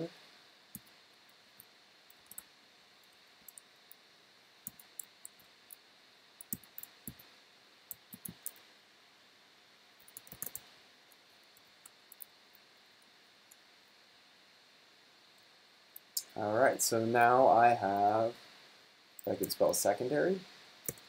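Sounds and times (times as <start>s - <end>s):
computer keyboard typing: 4.6s - 5.4s, 6.4s - 7.3s, 7.9s - 8.6s, 10.0s - 10.6s.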